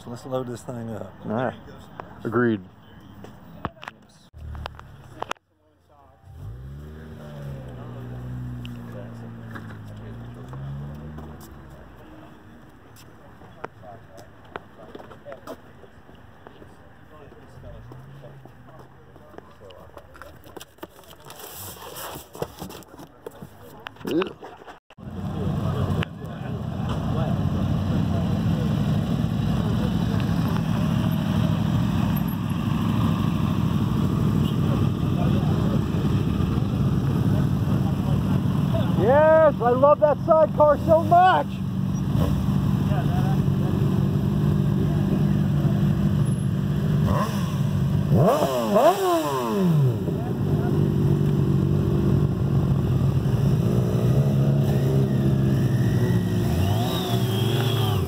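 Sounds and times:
motorcycles riding past: 0:06.3 - 0:12.3, 0:25.0 - 0:58.0
pickup truck engine: 0:25.0 - 0:58.0.

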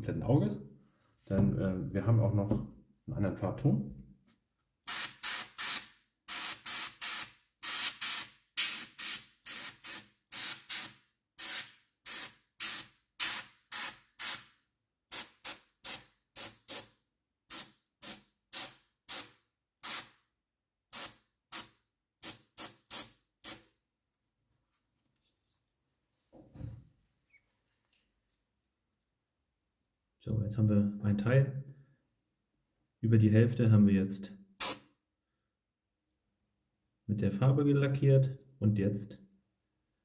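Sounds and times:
airbrush spraying in hissing bursts: 0:04.9 - 0:14.5, 0:17.5 - 0:20.1, 0:34.6 - 0:34.8.

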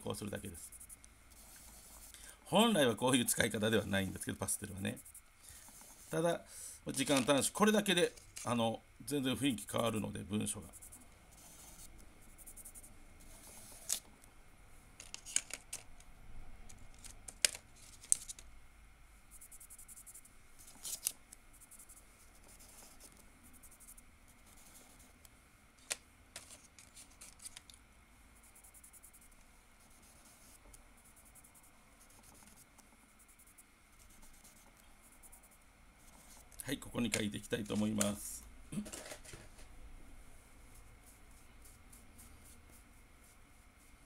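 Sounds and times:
chalk pastel rubbing on paper: 0:00.3 - 0:02.1, 0:04.6 - 0:06.2, 0:41.0 - 0:44.0.

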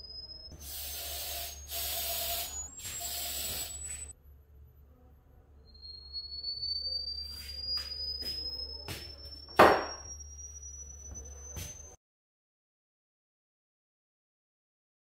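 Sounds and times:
thump: 0:09.6 - 0:10.0.

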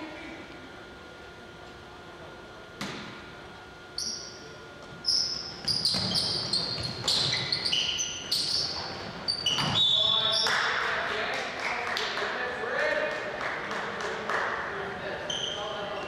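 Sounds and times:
sneakers squeaking: 0:03.9 - 0:10.8, 0:15.1 - 0:16.0.

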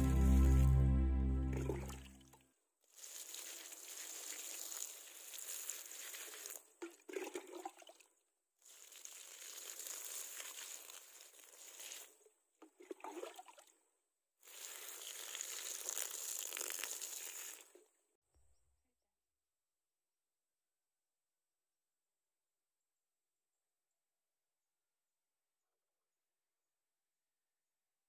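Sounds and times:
water splashing onto plants: 0:02.9 - 0:06.6, 0:08.7 - 0:12.1, 0:14.5 - 0:17.7.

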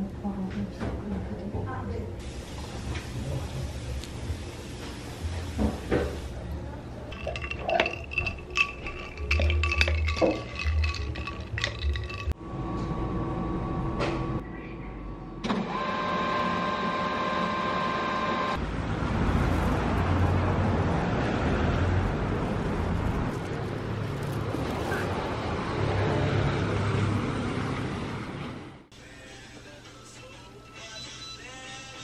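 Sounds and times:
rumble of passing vehicles: 0:18.6 - 0:28.9.

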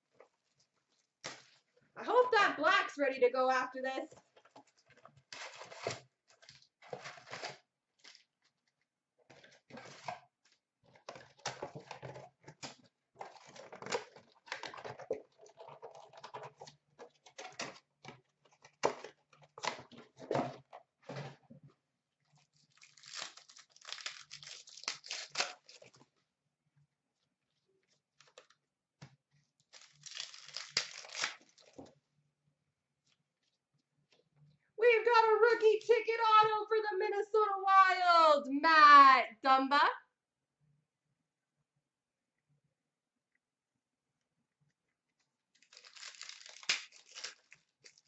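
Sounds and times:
foil packs crinkling and ripping: 0:05.3 - 0:08.3, 0:22.5 - 0:26.0, 0:29.7 - 0:31.8, 0:45.6 - 0:48.0
cardboard box tearing: 0:22.7 - 0:25.9, 0:29.8 - 0:31.8, 0:45.6 - 0:48.0.

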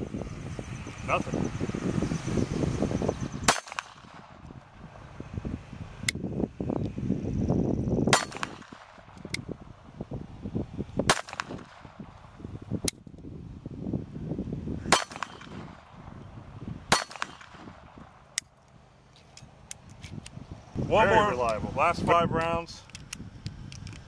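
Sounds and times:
wind rumble on microphone: 0:00.0 - 0:24.0
pistol shots: 0:03.5 - 0:04.4, 0:08.1 - 0:09.1, 0:11.1 - 0:12.0, 0:14.9 - 0:15.9, 0:16.9 - 0:18.0
metallic clicks of gun slide: 0:18.4 - 0:20.4, 0:22.8 - 0:24.0.

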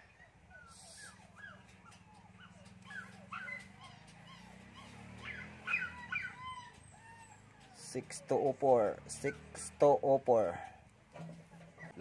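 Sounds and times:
dog whimpering: 0:00.0 - 0:08.1, 0:11.7 - 0:12.0.

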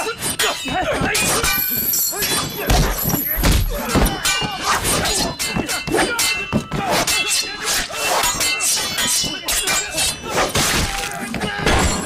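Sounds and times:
swords clashing: 0:00.0 - 0:12.0
music: 0:03.8 - 0:12.0.

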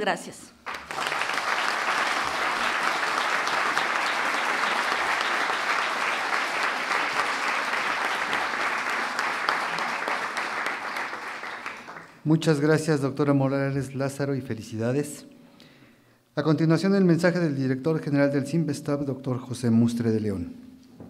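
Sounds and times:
audience applauding: 0:00.6 - 0:12.3.

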